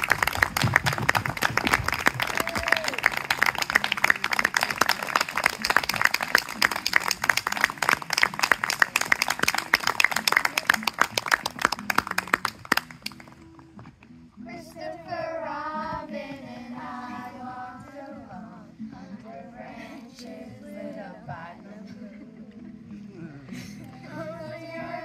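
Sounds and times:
audience applause: 0.0s - 13.4s.

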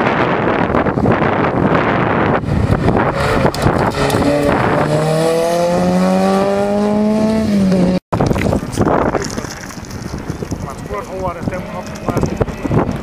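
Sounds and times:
wind on microphone: 0.0s - 13.0s
rally car engine accelerating: 2.4s - 8.0s.

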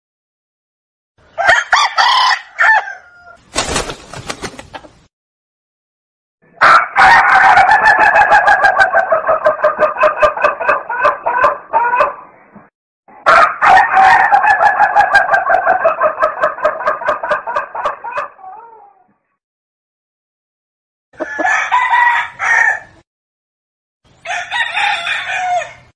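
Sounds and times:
chicken clucking rapidly: 3.6s - 5.1s, 6.7s - 12.2s, 13.6s - 18.6s, 21.2s - 22.1s.

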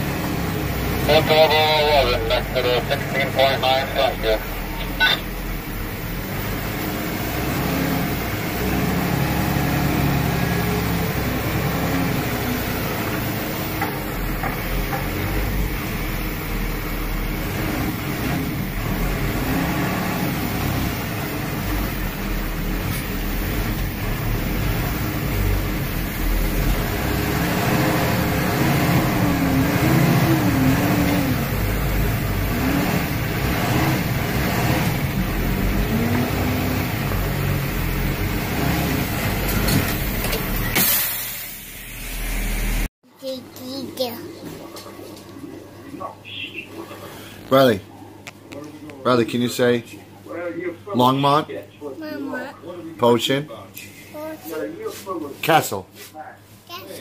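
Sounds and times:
diesel truck engine at low revs: 0.0s - 42.9s.

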